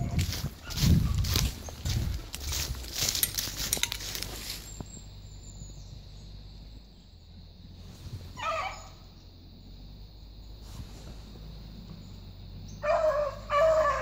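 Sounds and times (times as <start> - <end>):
footsteps through dry leaves: 0.0 - 4.9
dog barking: 12.8 - 14.0.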